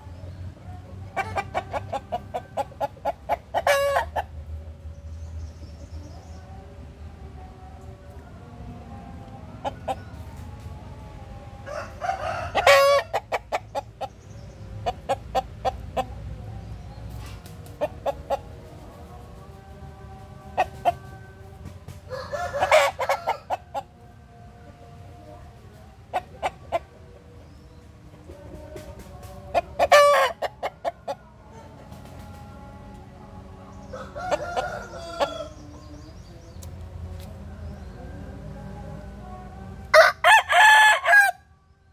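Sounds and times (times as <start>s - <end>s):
chicken clucking: 0.0s - 4.7s, 7.4s - 38.4s
rooster crowing: 11.6s - 13.3s, 22.1s - 23.8s, 33.9s - 35.9s, 39.9s - 41.5s.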